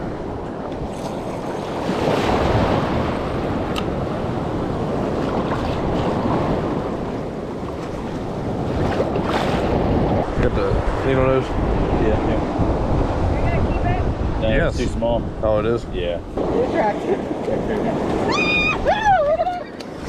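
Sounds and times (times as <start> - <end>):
ocean surf breaking: 0.0 - 15.5, 16.2 - 20.0
wind buffeting microphone: 0.0 - 20.0.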